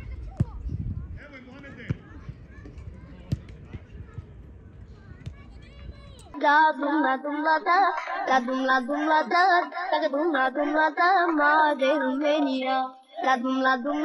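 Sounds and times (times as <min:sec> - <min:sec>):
person singing: 0:06.4 - 0:14.0.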